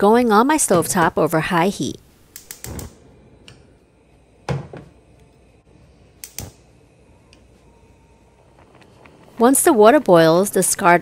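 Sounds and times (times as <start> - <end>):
gas cooktop igniter clicks: 6.2 - 6.6.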